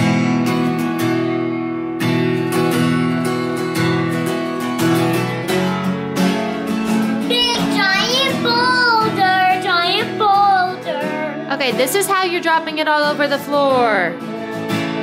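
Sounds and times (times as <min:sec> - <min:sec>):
acoustic guitar strumming: 0:00.0 - 0:15.0
person singing: 0:07.2 - 0:12.4.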